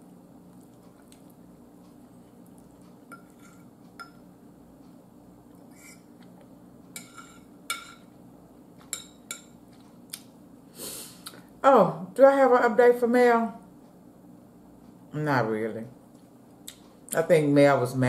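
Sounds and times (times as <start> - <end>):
faint low hum: 0.0 - 18.0
fork clinking on plate: 3.1 - 4.3, 7.0 - 8.1, 8.8 - 9.6.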